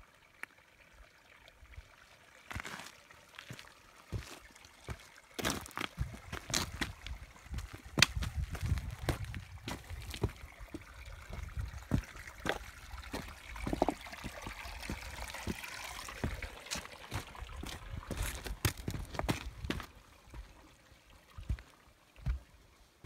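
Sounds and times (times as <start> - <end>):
water trickling among stones: 0.0 - 23.0
footsteps on loose rock: 2.5 - 19.9.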